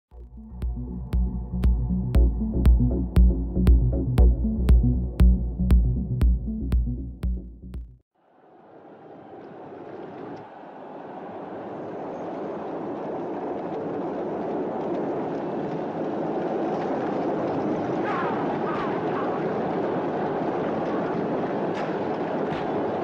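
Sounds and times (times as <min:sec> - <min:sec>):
horses and chariots racing: 0:08.7 - 0:23.0.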